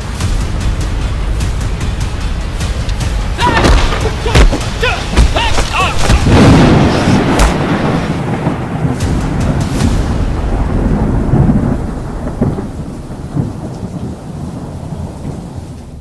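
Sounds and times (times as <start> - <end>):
low thunder-like rumble: 6.2 - 16.0.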